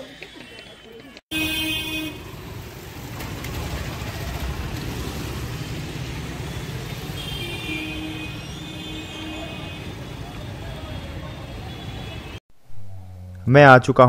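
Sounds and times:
traffic engines running: 0:00.0 - 0:12.4
vehicle horn: 0:01.3 - 0:02.6, 0:06.4 - 0:12.4.

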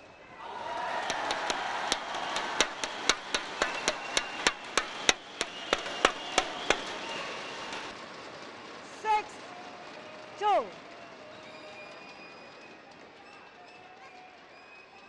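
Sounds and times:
crowd cheering: 0:00.0 - 0:08.0
rhythmic clapping: 0:00.7 - 0:07.9.

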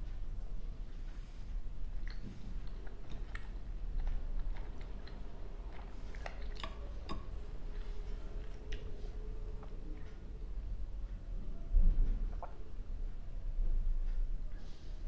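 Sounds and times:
person chewing: 0:01.9 - 0:10.2.

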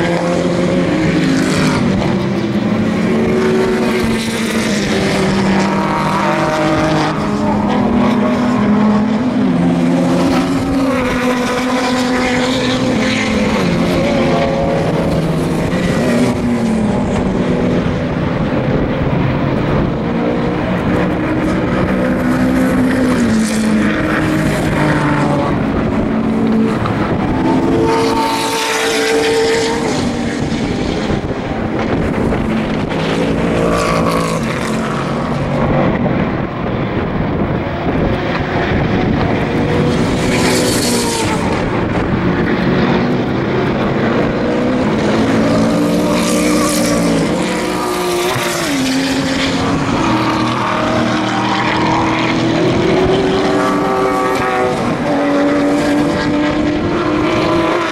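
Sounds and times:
car passing close: 0:00.0 - 0:57.9
racing car engines revving: 0:00.0 - 0:57.9.

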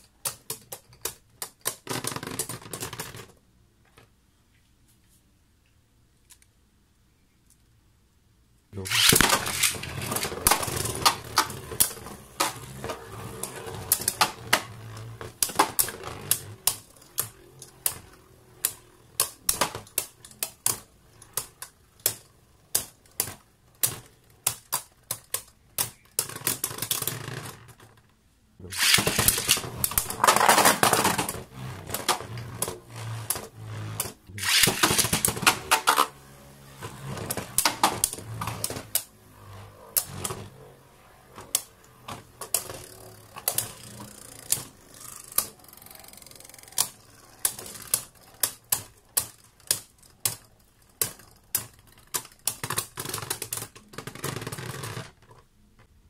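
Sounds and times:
spinning tops whirring: 0:08.8 - 0:27.7, 0:28.6 - 0:55.2
spinning tops clashing: 0:08.9 - 0:21.6, 0:28.7 - 0:36.2.

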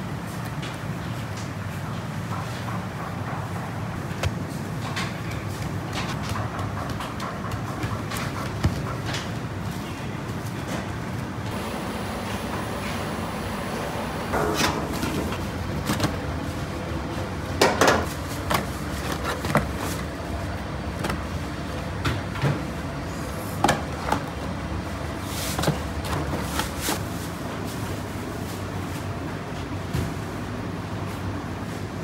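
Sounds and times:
steady low hum: 0:11.1 - 0:22.0.

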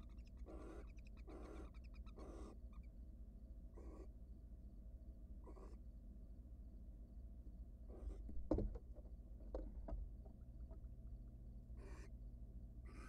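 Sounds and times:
owl hissing: 0:00.0 - 0:02.9, 0:03.8 - 0:04.1, 0:05.4 - 0:05.8, 0:11.8 - 0:12.1
knocks on wooden nest box: 0:08.3 - 0:10.0.

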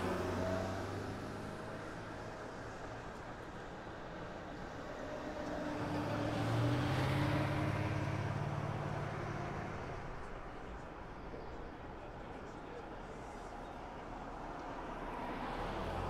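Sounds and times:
busy street noise: 0:00.0 - 0:16.0
vehicle engine droning past: 0:05.4 - 0:10.0.

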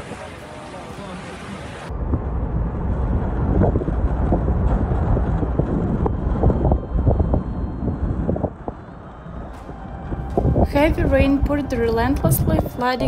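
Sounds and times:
storm wind buffeting microphone: 0:00.0 - 0:13.0.

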